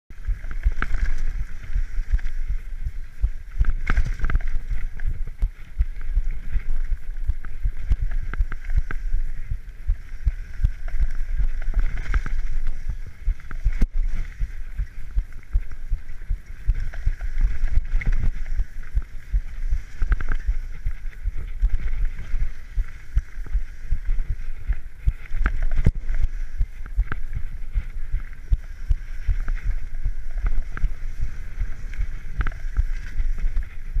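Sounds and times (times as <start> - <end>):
bike rattling over bumps: 0.1 - 34.0
wind buffeting microphone: 0.1 - 34.0.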